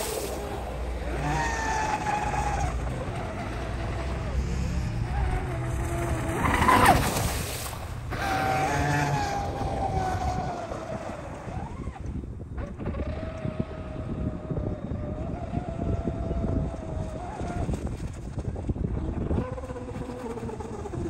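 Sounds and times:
electric motor high whine: 8.1s - 17.7s.

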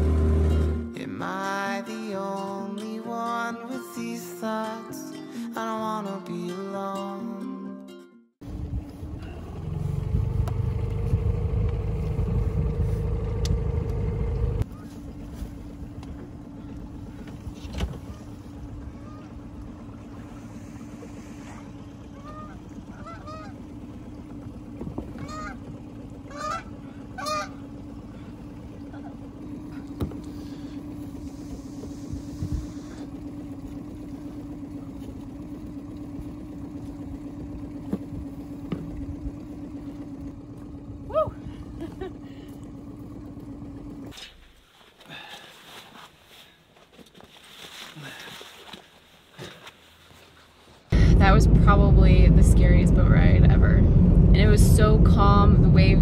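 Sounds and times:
outboard motor idling: 0.0s - 2.4s, 8.4s - 47.0s, 48.0s - 56.0s
birds honking: 16.2s - 38.7s.

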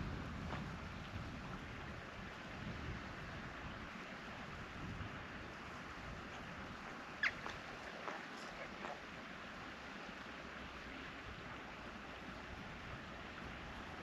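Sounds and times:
wind noise on microphone: 0.0s - 9.0s.

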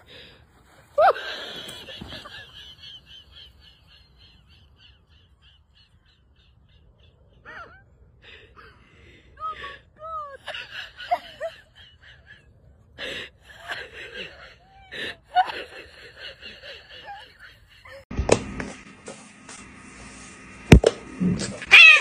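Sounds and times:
woman laughing: 1.0s - 6.7s, 7.4s - 8.0s, 9.4s - 18.1s.

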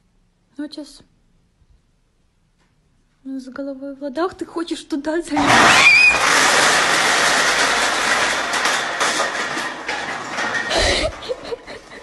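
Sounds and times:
cans clattering on wooden floor: 6.2s - 12.0s.

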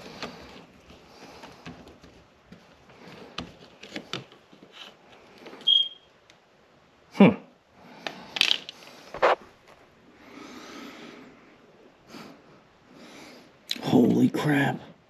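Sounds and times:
short high beep: 5.7s - 6.1s
sharp scrape: 9.1s - 9.4s.

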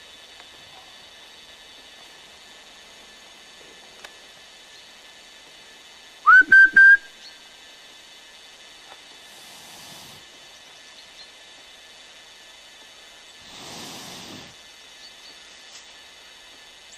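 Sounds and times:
whistle blasts: 6.3s - 7.2s.

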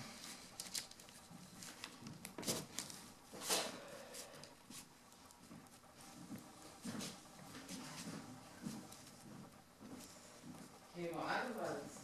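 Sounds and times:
thin wires ticking and rustling: 0.2s - 3.3s, 8.4s - 12.0s.

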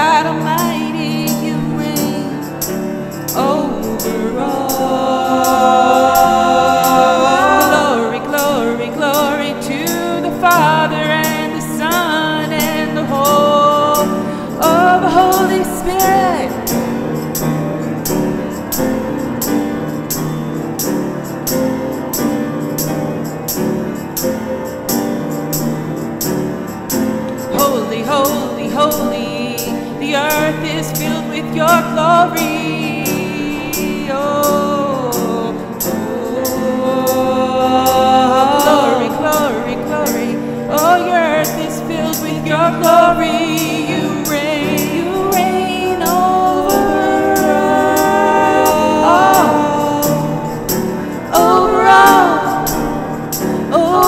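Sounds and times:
person singing long sliding notes: 0.0s - 19.0s, 27.4s - 54.0s
piano: 0.0s - 54.0s
tambourine beat: 0.0s - 54.0s.

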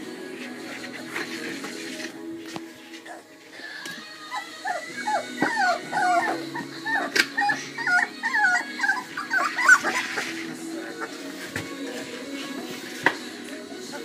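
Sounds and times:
puppies whining: 3.0s - 12.8s.

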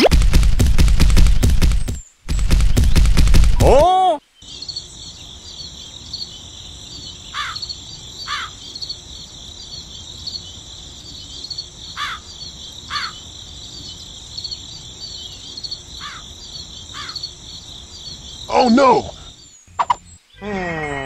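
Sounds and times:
crickets chirping: 4.2s - 21.0s.

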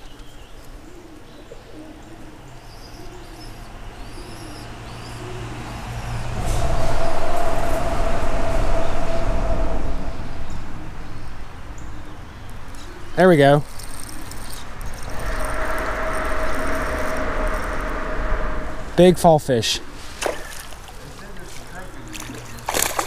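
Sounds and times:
dove cooing: 0.7s - 6.4s
vehicle rumble and tyre noise: 4.6s - 13.0s.

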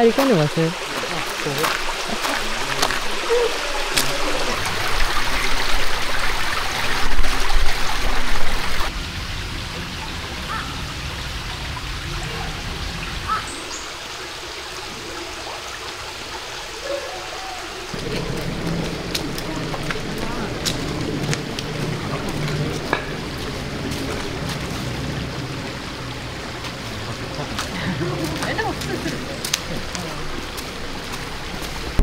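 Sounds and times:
running water: 0.0s - 32.0s
low uneven rumble: 17.9s - 32.0s.

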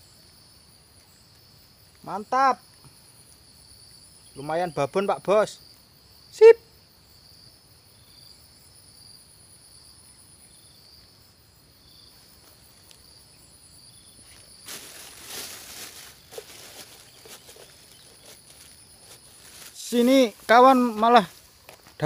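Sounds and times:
high-pitched insect chorus: 0.0s - 22.0s
short insect chirp: 0.0s - 22.0s
rustling and handling noise: 14.2s - 22.0s.

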